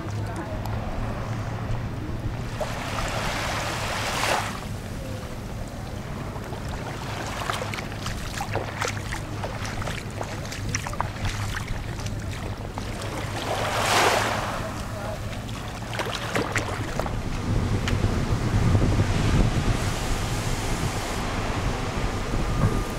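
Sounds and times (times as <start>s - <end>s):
waves washing up shore: 0.0s - 22.9s
shallow water splashes: 2.3s - 17.7s.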